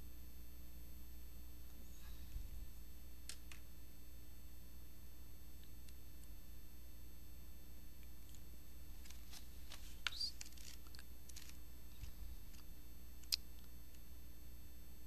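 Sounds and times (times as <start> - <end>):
steady electrical hum: 0.0 - 15.0
scratchy clicks: 8.2 - 14.0.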